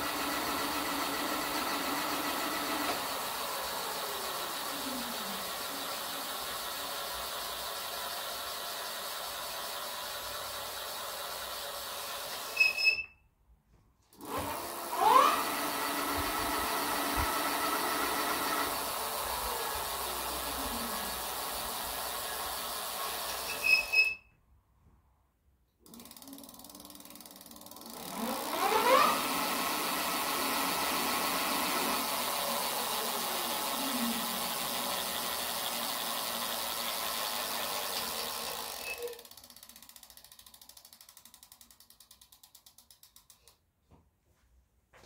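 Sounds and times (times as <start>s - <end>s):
electric hub motor whine: 0.0s - 12.9s, 14.2s - 24.1s, 25.9s - 41.3s
short high squeal: 12.5s - 13.2s, 23.5s - 24.3s.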